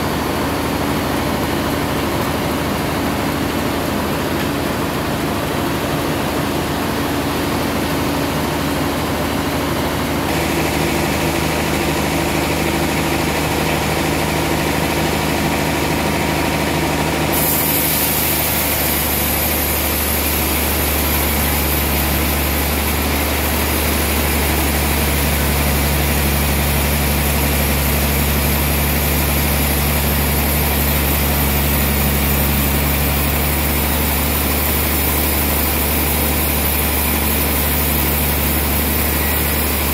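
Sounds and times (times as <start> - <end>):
sawmill machine hum: 0.0 - 39.9
saw blade cutting log: 17.3 - 39.9.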